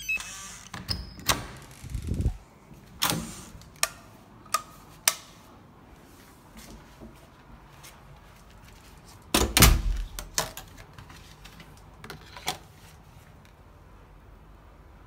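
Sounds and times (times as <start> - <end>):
door thudding: 9.4 - 10.2.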